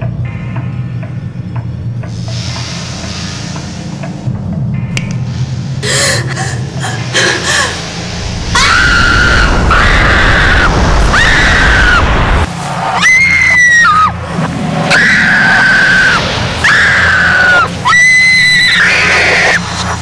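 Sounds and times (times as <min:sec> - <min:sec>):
low rumble: 0:04.3 - 0:13.0
person screaming: 0:08.5 - 0:12.1.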